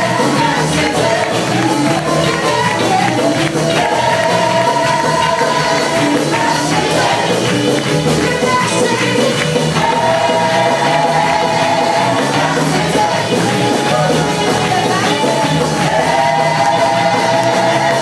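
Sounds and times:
gospel band and singers performing: 0.0s - 18.0s.

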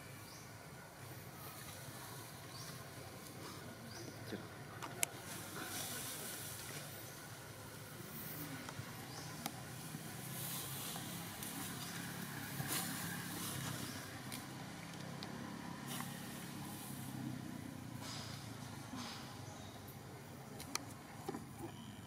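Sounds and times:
hissy outdoor background: 0.0s - 22.0s
faint clicks: 20.5s - 21.0s.

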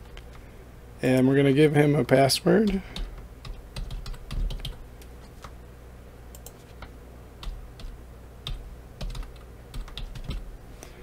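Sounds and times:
low steady hum: 0.0s - 11.0s
keyboard keys clicking: 3.8s - 4.8s, 8.5s - 10.4s.

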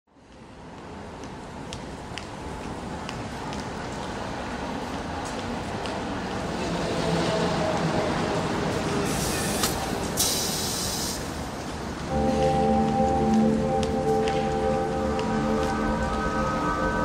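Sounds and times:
rain-like hiss: 9.1s - 11.6s
sustained music chords: 12.1s - 17.0s.

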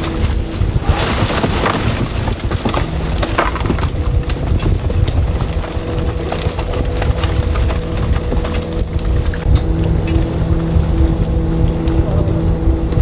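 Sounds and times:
fish flapping and thrashing: 0.0s - 10.0s
steady low hum: 0.0s - 13.0s.

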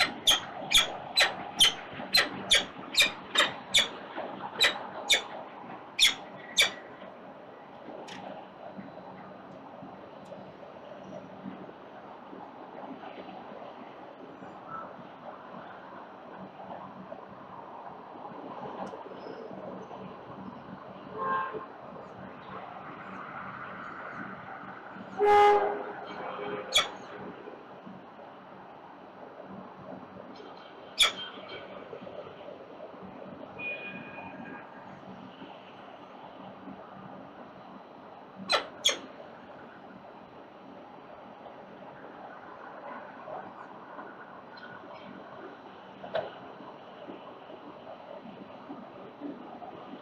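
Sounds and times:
city traffic hum: 0.0s - 50.0s
loud vehicle horn: 21.1s - 21.7s, 25.2s - 26.8s.

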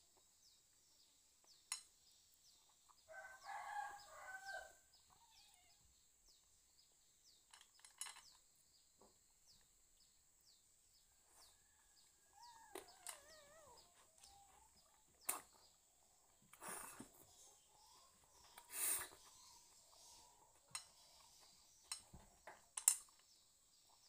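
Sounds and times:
faint chirps: 0.0s - 24.0s
rooster crowing: 3.1s - 4.8s.

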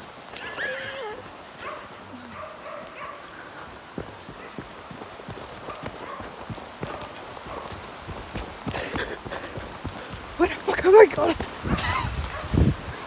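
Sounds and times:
quick footsteps on dirt path: 0.0s - 13.0s
faint dog barks: 1.0s - 3.7s, 4.3s - 4.8s, 5.5s - 8.0s, 12.3s - 12.6s.

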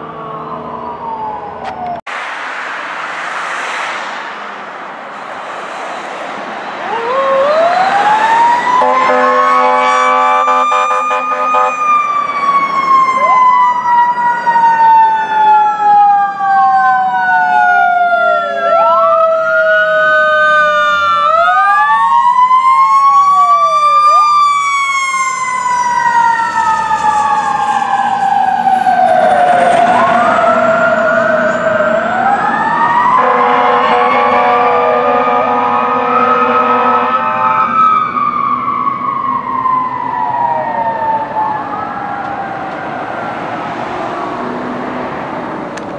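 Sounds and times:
electronic wail siren: 0.0s - 2.1s, 6.6s - 44.4s
air horn blasts: 8.7s - 12.0s, 33.2s - 37.8s.

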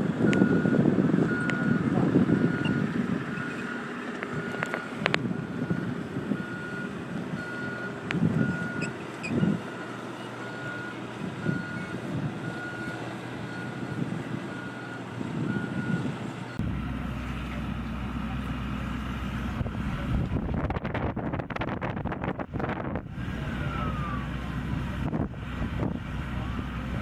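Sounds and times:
excavator travel alarm beeping: 0.2s - 20.0s
low machine rumble: 16.5s - 27.0s.

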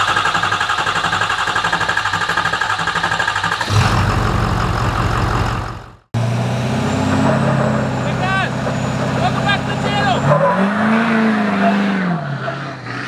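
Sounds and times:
diesel engine clattering: 0.0s - 11.4s.

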